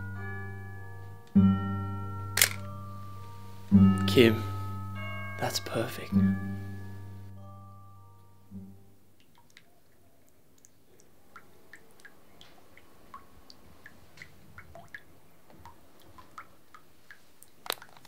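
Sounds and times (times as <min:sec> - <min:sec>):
sharp click: 0:02.4 - 0:02.7
water dripping: 0:08.2 - 0:18.0.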